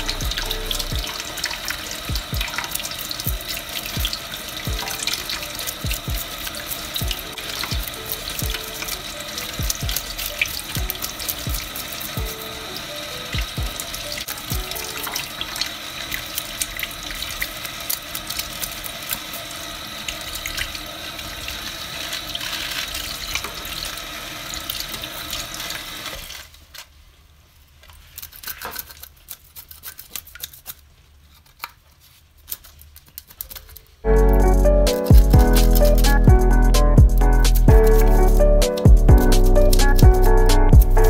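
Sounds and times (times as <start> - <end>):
background music: 0.0 - 15.6, 34.1 - 41.0
tap water running into sink: 0.0 - 26.4
knife scraping fish scales: 28.0 - 31.7.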